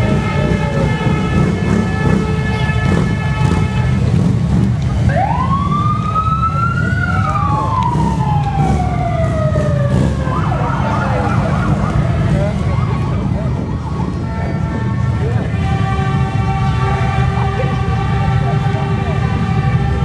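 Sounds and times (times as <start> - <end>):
horn blast: 0.0 - 5.1, 13.4 - 20.0
motorcycles rumbling: 0.0 - 20.0.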